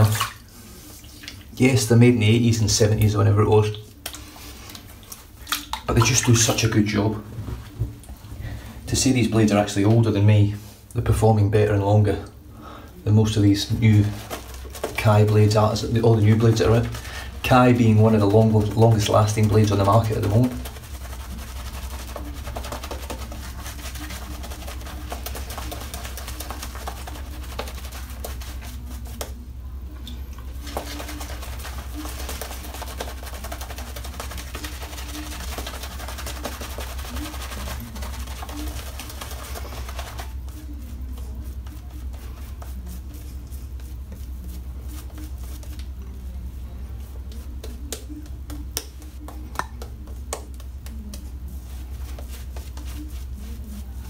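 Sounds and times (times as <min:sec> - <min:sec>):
shaving brush scrubbing lather: 0:04.7 - 0:06.8, 0:13.1 - 0:54.0.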